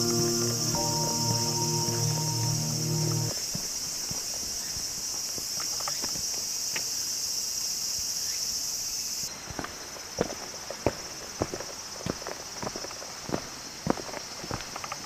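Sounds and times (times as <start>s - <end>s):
high-pitched insect chorus: 0.0s - 15.0s
footsteps on woodland path: 3.3s - 6.2s, 9.3s - 15.0s.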